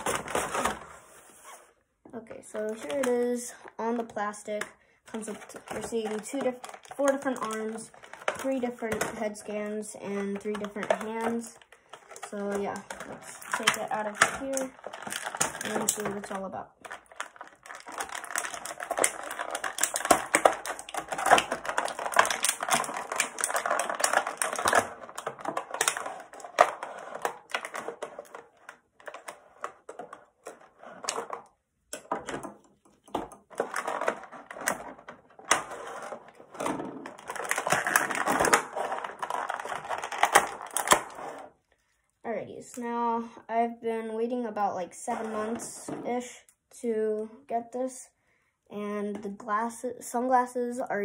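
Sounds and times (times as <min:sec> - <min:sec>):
plastic blister tray crackling: 0:03.9 - 0:41.4.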